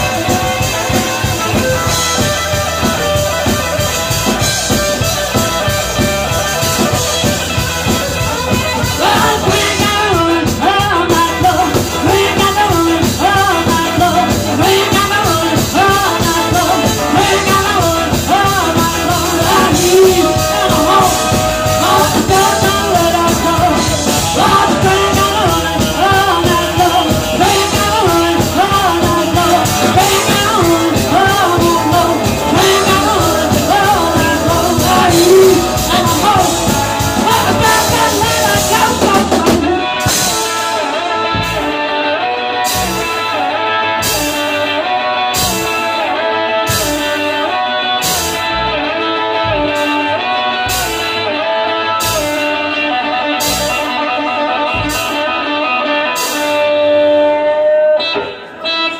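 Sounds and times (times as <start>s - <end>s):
rock band playing: 0.0s - 58.9s
woman singing: 8.7s - 41.1s.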